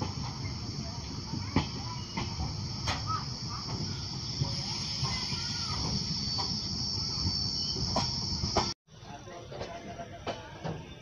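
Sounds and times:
insects chirring: 0:00.0 - 0:08.7
train wheels rumbling on rails: 0:00.0 - 0:08.8.

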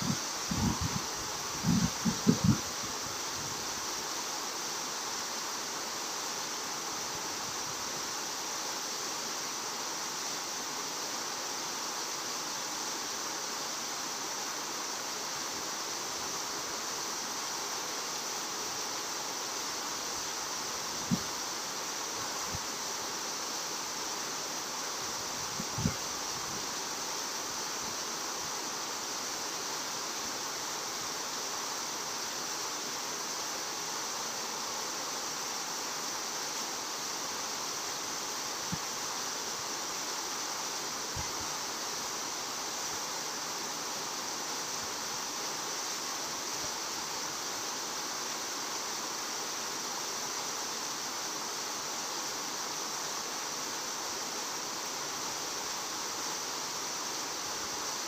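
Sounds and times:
outdoor hiss: 0:00.0 - 0:58.0.

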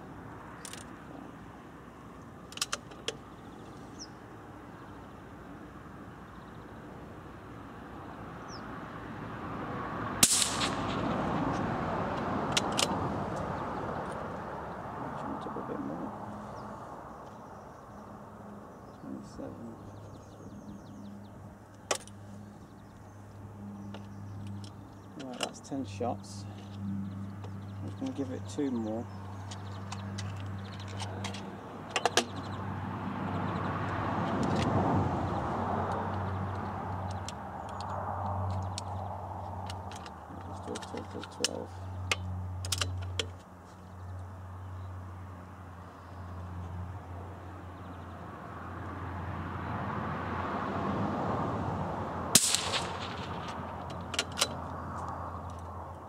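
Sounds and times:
vehicle passing by: 0:07.4 - 0:42.6, 0:44.0 - 0:56.0
rifle shot: 0:10.2 - 0:11.3, 0:52.3 - 0:53.8
background rush: 0:52.3 - 0:54.4
sharp clicks: 0:52.4 - 0:55.6.

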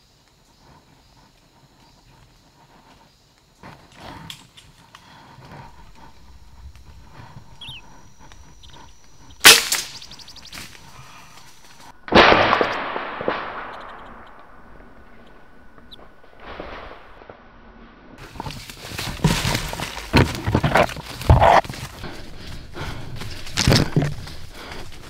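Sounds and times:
gunshots: 0:09.4 - 0:10.1, 0:12.1 - 0:15.4.

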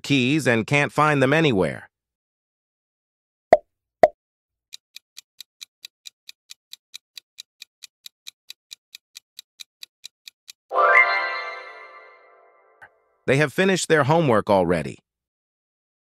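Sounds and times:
clock ticking: 0:04.7 - 0:10.7
ringing chime: 0:10.7 - 0:12.7.

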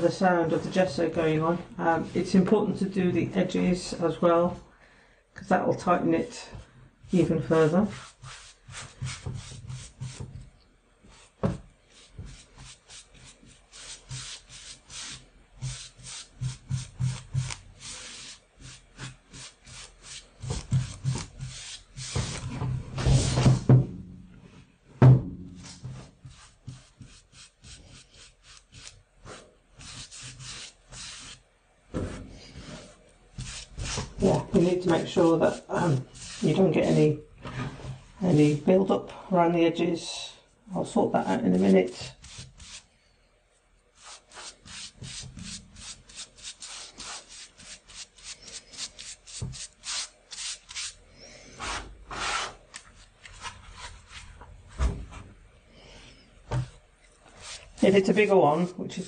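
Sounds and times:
brush scratching on canvas: 0:07.1 - 0:10.3, 0:11.1 - 0:22.5, 0:25.6 - 0:31.4, 0:32.5 - 0:37.1, 0:41.3 - 0:42.9, 0:44.0 - 0:51.0, 0:57.2 - 0:58.8
low knock: 0:25.0 - 0:25.6.

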